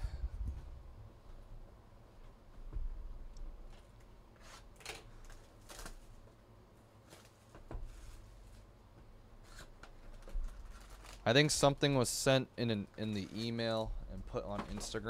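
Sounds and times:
plastic wrap crinkling: 0:09.5 - 0:11.8.

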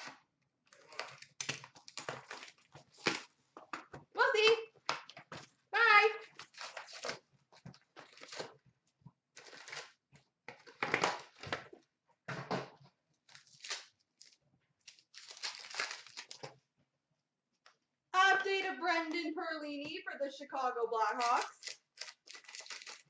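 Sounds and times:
card pack wrappers tearing: 0:00.7 - 0:03.3, 0:06.2 - 0:07.2, 0:08.0 - 0:08.6, 0:09.4 - 0:10.0, 0:13.3 - 0:16.6, 0:21.2 - 0:23.0
cards being handled: 0:21.3 - 0:23.0.

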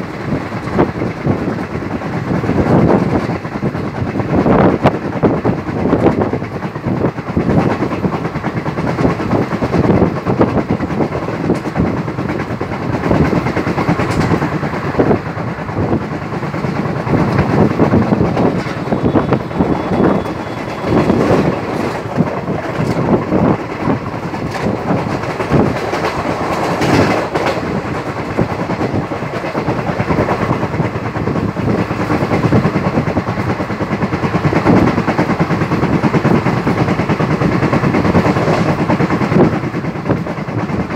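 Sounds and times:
train running noise: 0:00.0 - 0:40.9
wheels clattering over track: 0:00.0 - 0:40.9.

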